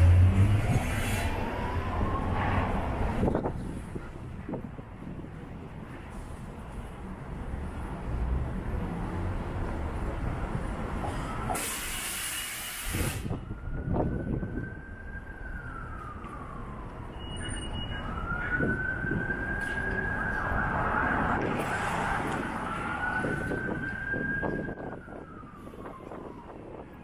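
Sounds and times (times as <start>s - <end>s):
city street traffic: 0.0s - 27.0s
loud hiss: 11.6s - 13.3s.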